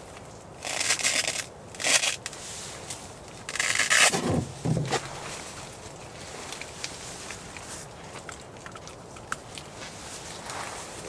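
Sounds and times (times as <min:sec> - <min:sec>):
fabric rustling and scraping: 0:02.4 - 0:07.3, 0:09.8 - 0:11.0
dull thuds: 0:03.9 - 0:05.6.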